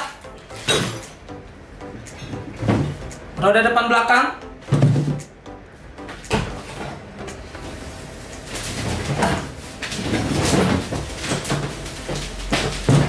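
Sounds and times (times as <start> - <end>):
plastic wrapping rustling: 7.7 - 13.0.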